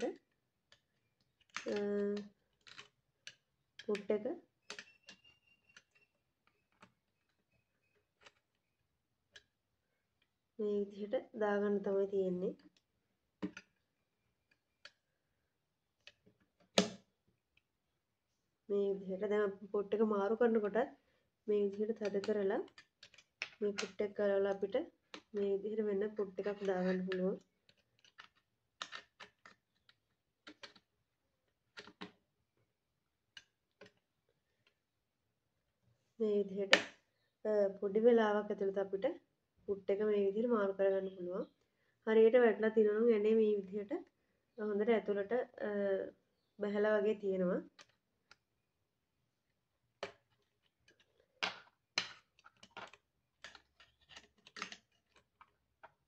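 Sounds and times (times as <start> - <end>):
small metal clicks and taps: 0.2 - 7.0, 26.5 - 30.9.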